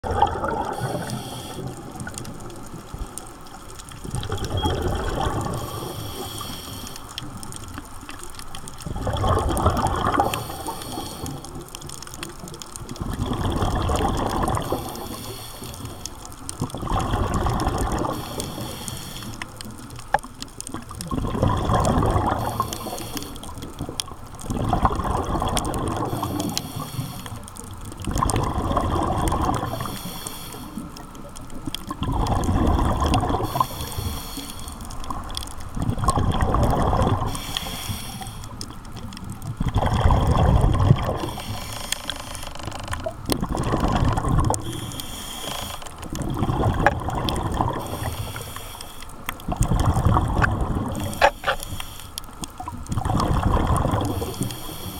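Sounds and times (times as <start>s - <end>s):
exhaled bubbles rushing: 0.0s - 3.2s, 3.8s - 6.0s, 8.8s - 10.8s, 11.4s - 15.2s, 16.6s - 18.7s, 20.8s - 22.9s, 23.8s - 26.6s, 28.0s - 30.0s, 31.9s - 34.0s, 35.0s - 37.5s, 38.6s - 41.6s, 43.0s - 44.9s, 46.0s - 48.4s, 49.4s - 51.6s, 52.5s - 54.5s
regulator hissing on in-breath: 0.7s - 1.8s, 5.6s - 7.2s, 10.2s - 11.6s, 14.6s - 16.1s, 18.1s - 19.6s, 22.4s - 23.6s, 26.0s - 27.4s, 29.6s - 30.9s, 33.4s - 34.9s, 37.3s - 38.6s, 41.2s - 42.4s, 44.6s - 46.0s, 47.8s - 49.2s, 50.9s - 52.3s, 54.1s - 54.9s.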